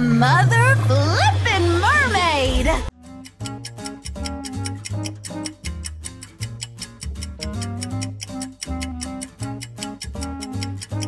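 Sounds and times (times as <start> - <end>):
background music with bass line: 2.6 - 11.0
ticking beat: 2.9 - 11.0.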